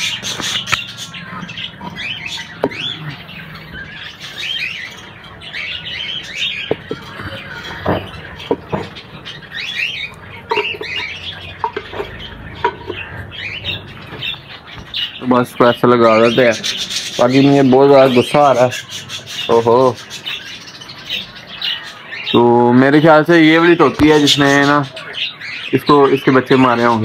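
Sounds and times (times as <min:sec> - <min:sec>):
parrots chirping and squawking: 0:00.0 - 0:27.0
clay pot knocking and scraping: 0:06.6 - 0:09.1, 0:10.4 - 0:13.3.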